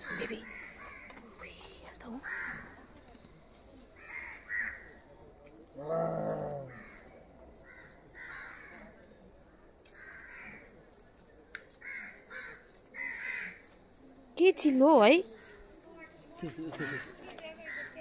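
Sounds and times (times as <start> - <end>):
birds calling: 15.3 - 18.0.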